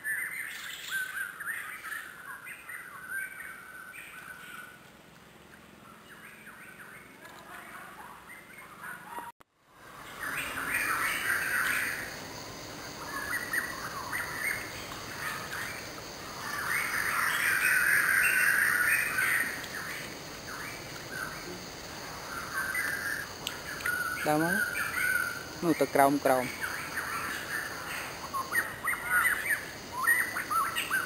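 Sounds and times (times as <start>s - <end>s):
birds chattering and calling: 5.6s - 9.3s, 9.9s - 31.0s.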